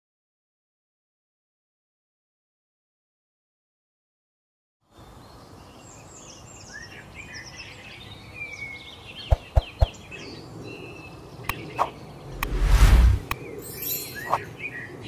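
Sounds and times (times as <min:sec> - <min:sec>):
outdoor background hiss: 0:04.9 - 0:15.0
songbirds chirping and whistling: 0:05.0 - 0:12.6, 0:13.2 - 0:15.0.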